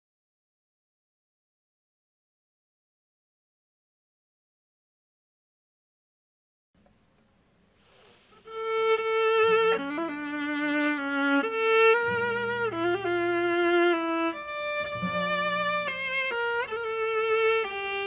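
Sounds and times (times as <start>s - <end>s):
bowed string instruments playing: 8.4s - 18.0s.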